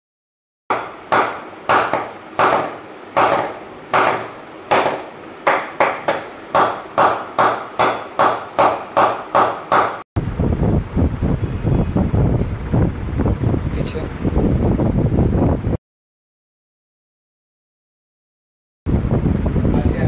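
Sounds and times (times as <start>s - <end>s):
wooden mallet knocking cricket bat: 0.7s - 10.0s.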